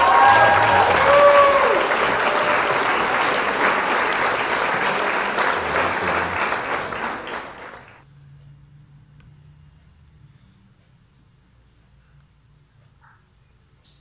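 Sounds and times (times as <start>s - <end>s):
dense clapping: 0.0s - 8.0s.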